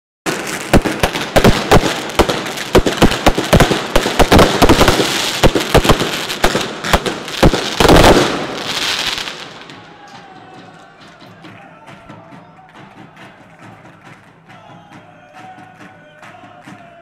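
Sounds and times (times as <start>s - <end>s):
fireworks crackling: 0.3s - 10.3s
firecrackers banging: 0.3s - 11.2s.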